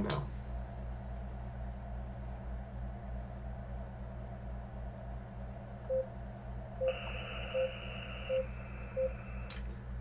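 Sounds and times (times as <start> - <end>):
short low beeps: 6.8 - 9.4
steady high radio tone: 6.8 - 9.6.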